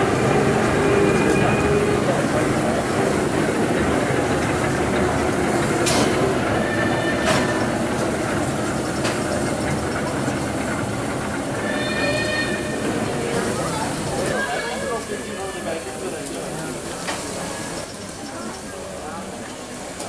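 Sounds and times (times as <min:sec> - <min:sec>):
steam locomotive rumble and hiss: 0:00.0 - 0:20.0.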